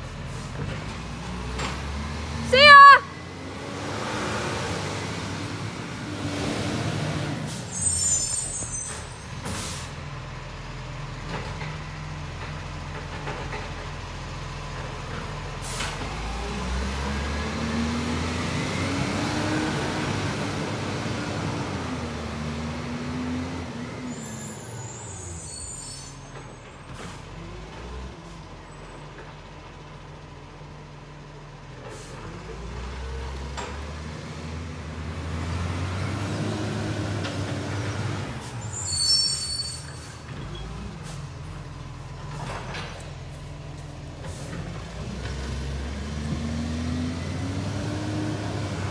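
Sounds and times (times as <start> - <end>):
garbage truck engine: 0.0 - 48.9
air brake hisses: 7.5 - 10.0.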